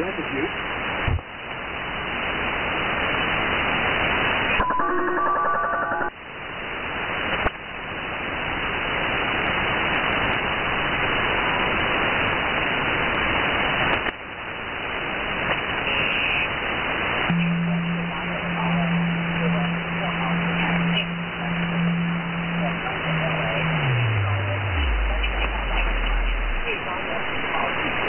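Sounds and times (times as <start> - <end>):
shortwave radio static hiss: 0.0 - 28.0
stepped radio tones: 17.3 - 28.0.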